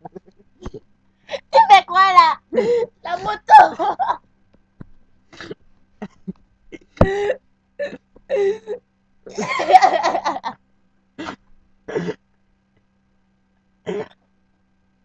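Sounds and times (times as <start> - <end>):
girl laughing: 0.0 - 4.2, 9.3 - 10.6.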